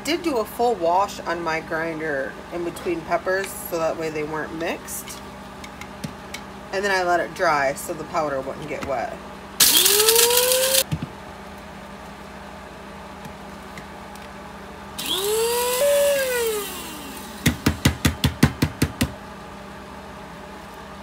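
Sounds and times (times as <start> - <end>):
electric blade grinder whining: 9.6 - 10.8, 15.0 - 17.5.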